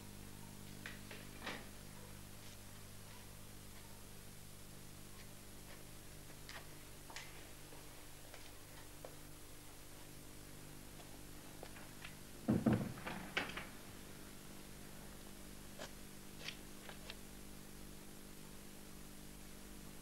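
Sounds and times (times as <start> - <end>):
faint steady hum: 0.0 - 20.0
door thudding shut: 12.5 - 13.8.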